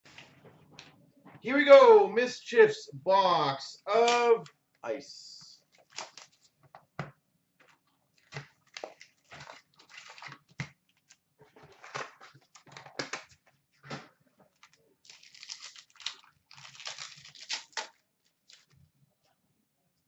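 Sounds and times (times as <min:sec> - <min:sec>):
plastic wrapping crinkling: 0:05.6 - 0:06.8, 0:07.6 - 0:13.6, 0:14.5 - 0:18.8
card packs being torn open: 0:05.7 - 0:06.5, 0:08.2 - 0:11.1, 0:14.6 - 0:18.7.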